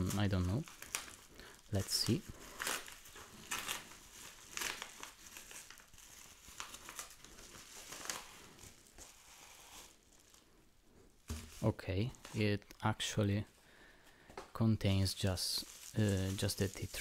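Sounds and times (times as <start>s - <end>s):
paper envelope crumpled and torn: 0.0s - 10.5s, 15.1s - 17.0s
bubble wrap crinkling: 0.0s - 12.8s, 14.9s - 17.0s.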